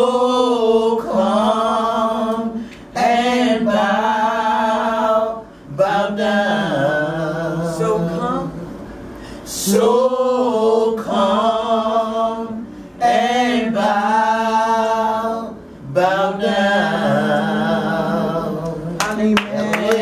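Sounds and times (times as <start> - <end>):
women singing a cappella: 0.0 - 20.0.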